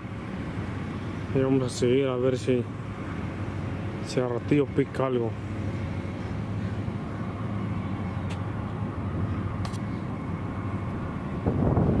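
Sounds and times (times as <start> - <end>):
wind buffeting microphone: 7.3 - 12.0.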